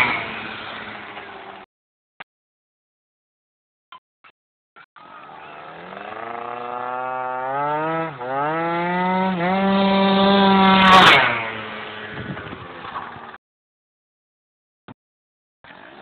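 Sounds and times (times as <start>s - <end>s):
scooter engine passing at high revs: 0.0s - 1.6s, 5.0s - 13.4s.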